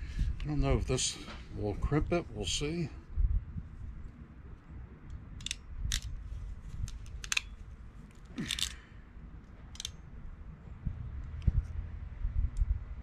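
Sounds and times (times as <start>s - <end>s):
crimping tool clicks and crunches: 8.1s - 8.8s.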